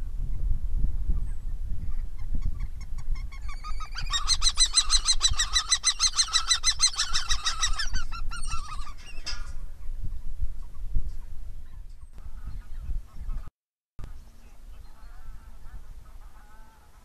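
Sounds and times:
wind rumble on microphone: 0.0s - 17.0s
kestrel calling: 2.2s - 9.5s.

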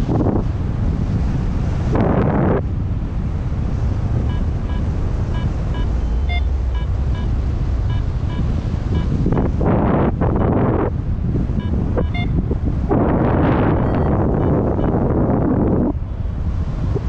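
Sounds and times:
wind buffeting microphone: 0.0s - 17.0s
variometer short beeps: 4.2s - 9.3s, 10.4s - 10.6s, 11.5s - 12.5s, 13.4s - 15.1s.

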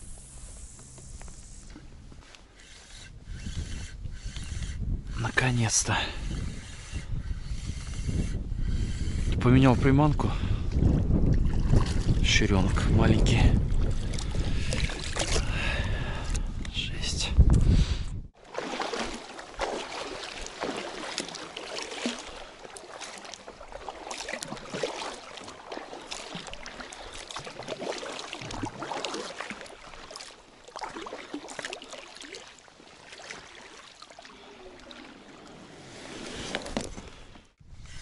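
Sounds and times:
paddle splashing in water: 11.2s - 12.4s, 13.7s - 15.6s, 18.4s - 37.5s.

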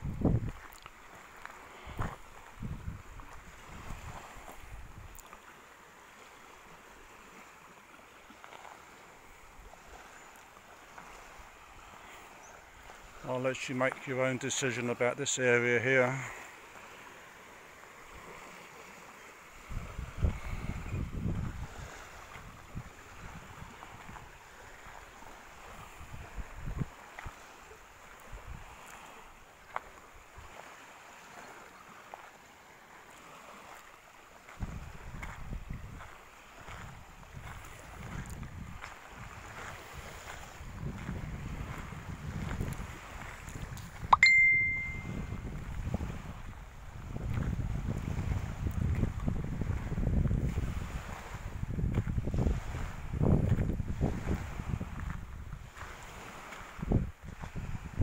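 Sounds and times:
wind buffeting microphone: 0.0s - 0.7s, 1.8s - 5.2s, 19.6s - 28.8s, 34.5s - 44.1s, 45.0s - 58.0s
steady outdoor hiss: 0.0s - 38.0s
small waves washing on sand: 0.0s - 58.0s.

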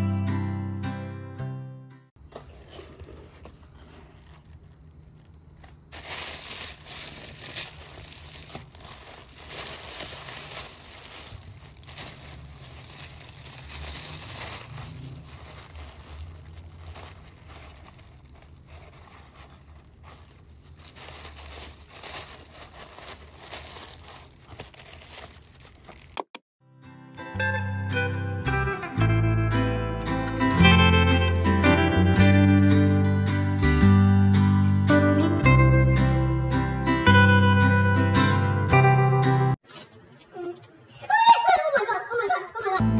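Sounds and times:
tissue paper crinkling: 2.4s - 26.3s.

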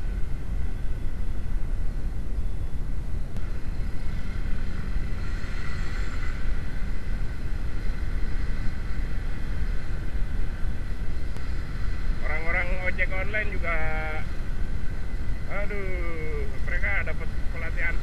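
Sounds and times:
wind rumbling on microphone: 0.0s - 18.0s.

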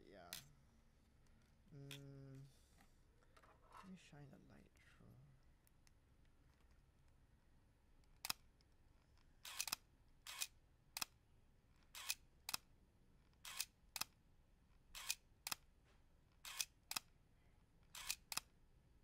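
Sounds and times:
camera shutter clicks: 9.4s - 11.1s, 11.9s - 12.6s, 13.4s - 14.1s, 15.0s - 15.6s, 16.4s - 17.1s, 17.9s - 18.5s.

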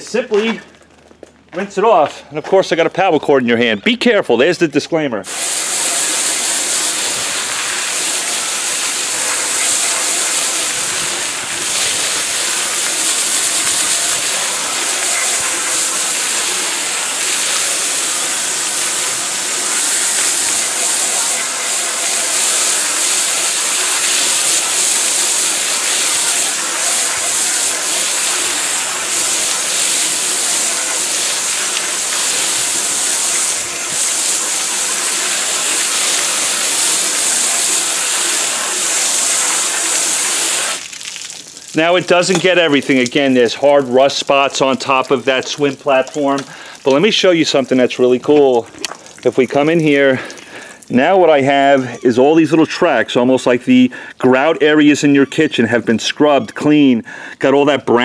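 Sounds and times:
hose spray hitting rubber: 5.3s - 50.9s.

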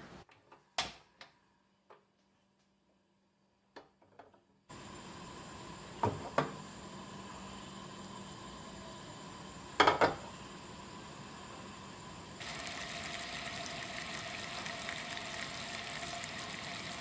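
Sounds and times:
gas stove hissing: 4.7s - 17.0s.

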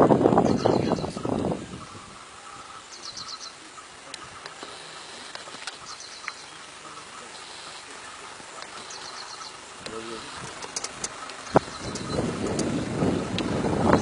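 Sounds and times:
faint clicks: 4.0s - 6.5s, 8.6s - 9.1s, 9.8s - 12.7s, 13.3s - 13.5s
high-pitched chirping: 10.2s - 12.3s.

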